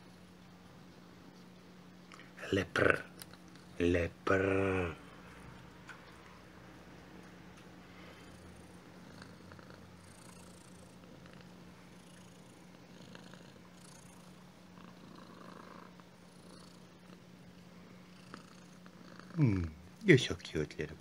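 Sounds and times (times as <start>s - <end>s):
cat purring: 7.9s - 20.0s.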